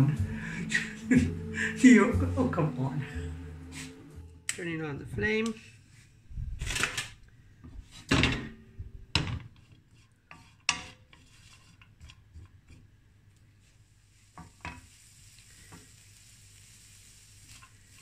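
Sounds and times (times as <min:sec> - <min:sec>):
fat sizzling: 0:13.6 - 0:18.0.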